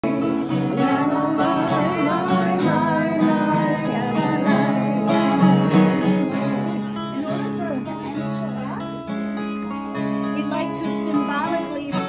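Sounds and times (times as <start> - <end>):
person singing: 0.0 - 7.2
acoustic guitar strumming: 0.0 - 12.0.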